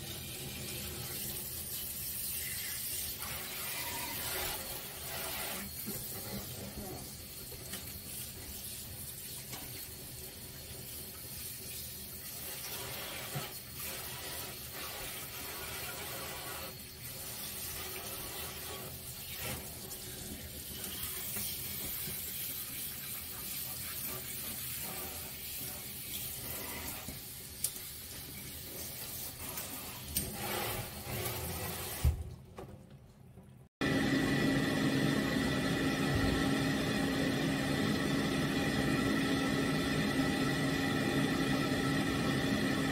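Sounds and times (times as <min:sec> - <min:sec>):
faucet water spraying on dog: 0:00.0 - 0:30.1.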